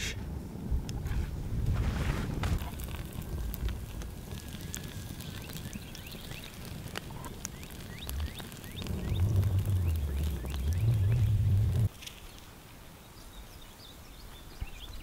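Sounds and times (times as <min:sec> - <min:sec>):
wood fire crackling and popping: 0:00.7 - 0:12.4
low rumble: 0:06.6 - 0:11.9.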